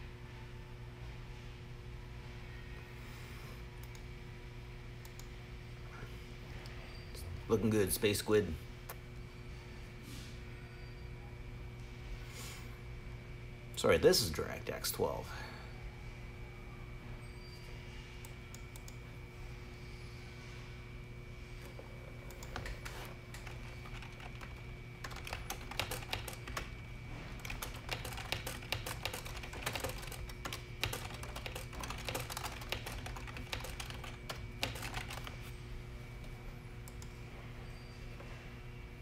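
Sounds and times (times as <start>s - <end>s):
steady electrical hum: 0.0s - 39.0s
keyboard typing clicks: 22.2s - 26.7s, 27.4s - 35.4s.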